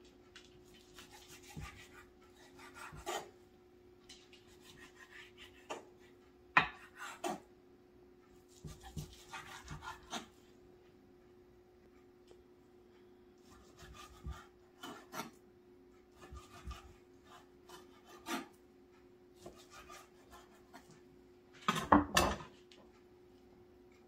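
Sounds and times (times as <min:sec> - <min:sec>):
faint steady hum: 0:00.0 - 0:24.0
knife slicing meat on board: 0:00.6 - 0:03.3, 0:04.3 - 0:05.9, 0:06.6 - 0:07.4, 0:08.5 - 0:10.4, 0:13.4 - 0:15.4, 0:16.1 - 0:18.6, 0:19.4 - 0:20.9.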